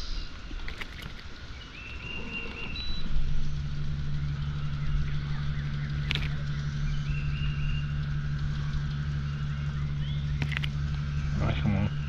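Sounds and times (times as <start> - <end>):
electric trolling motor humming: 0.0 - 12.0.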